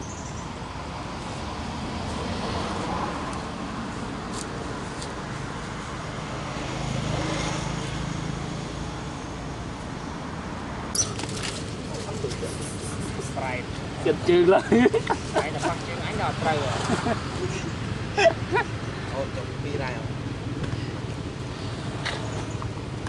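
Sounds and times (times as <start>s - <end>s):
outdoor traffic noise: 0.0s - 23.0s.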